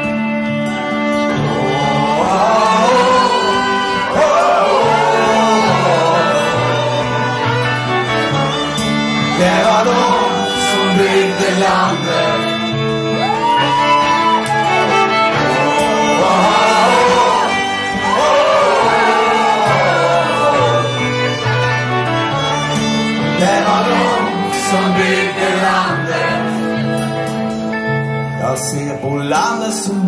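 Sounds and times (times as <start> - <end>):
fiddles playing sliding melody: 0.0 - 29.3
acoustic guitar: 0.0 - 30.0
electric guitar: 0.0 - 30.0.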